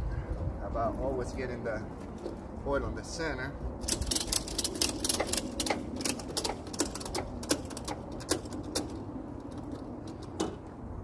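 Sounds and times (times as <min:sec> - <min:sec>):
sharp mechanical clicks: 0:03.8 - 0:10.4.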